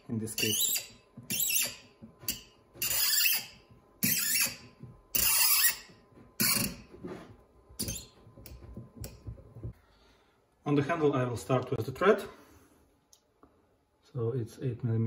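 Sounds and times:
tap wrench squeaking scrape: 0.4s - 6.8s, 7.8s - 8.2s.

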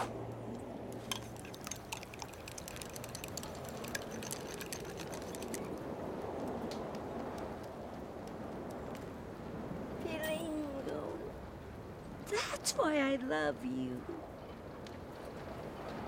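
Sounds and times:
small irregular crackles and clicks: 0.5s - 9.5s, 14.3s - 16.0s.

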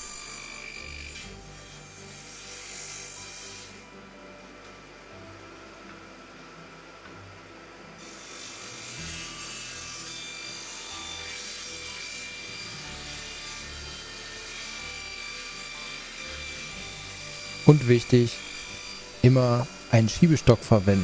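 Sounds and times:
table saw cutting wood: 0.0s - 21.0s.

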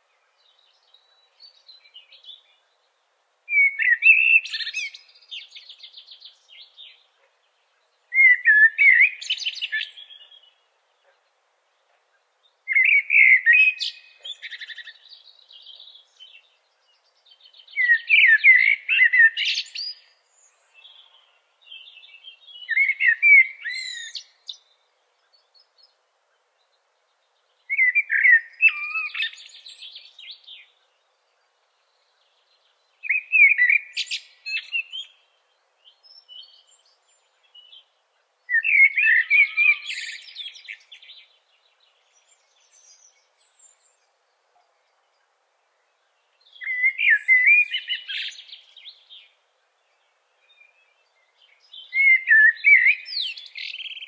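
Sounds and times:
songbird whistling phrases: 3.5s - 5.5s, 8.1s - 10.4s, 12.7s - 15.1s, 22.6s - 24.6s, 27.7s - 30.4s, 33.0s - 35.2s, 38.5s - 41.2s, 46.5s - 49.1s, 51.7s - 54.0s.

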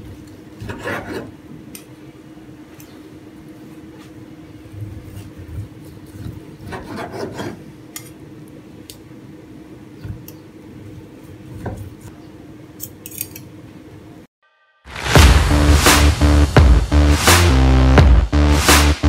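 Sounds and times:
knife scraping cutting board: 0.6s - 1.4s, 5.1s - 7.7s
knife and fork clicks: 12.8s - 13.5s.

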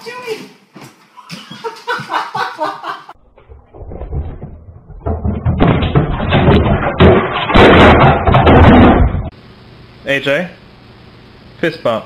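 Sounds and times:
muffled thumps and bangs: 3.2s - 9.3s.

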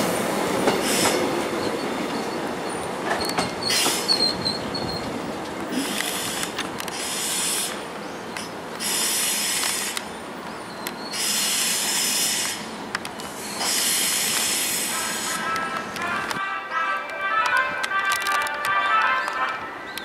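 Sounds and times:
train rumbling: 0.0s - 20.0s
train hiss bursts: 0.8s - 1.3s, 5.7s - 7.9s, 8.8s - 10.1s, 11.1s - 15.9s.

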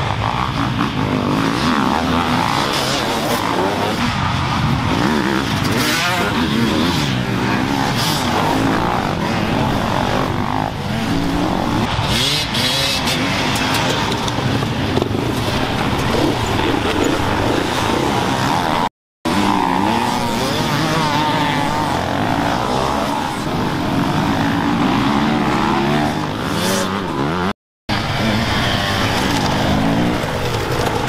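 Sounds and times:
dirt bikes revving: 0.0s - 31.0s.

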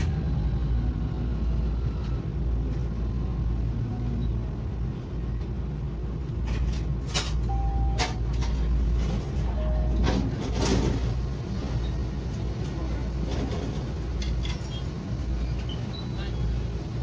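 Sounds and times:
tram low rumble: 0.0s - 17.0s.

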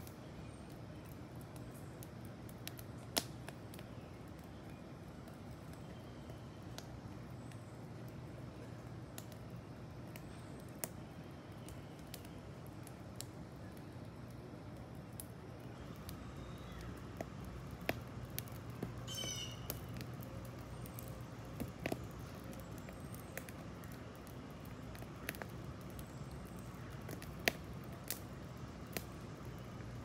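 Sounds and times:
campfire crackling and popping: 0.0s - 30.0s
bird chirping: 19.0s - 19.9s.

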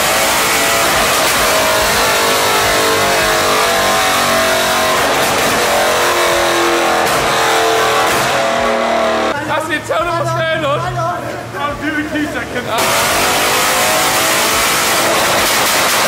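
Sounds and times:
loud car engine on dyno: 0.0s - 9.4s, 12.7s - 16.0s.

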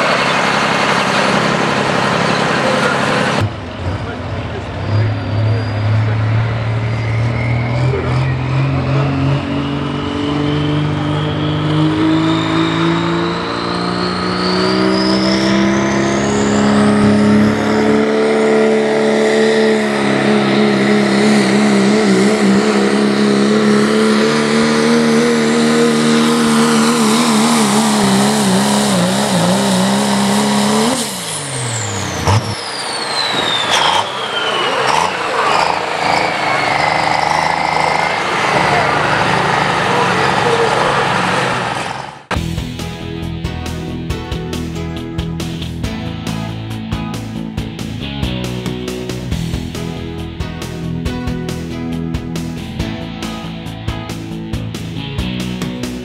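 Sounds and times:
diesel truck engine revving: 0.0s - 56.0s
turbo whistle: 13.1s - 17.3s, 31.6s - 38.1s.

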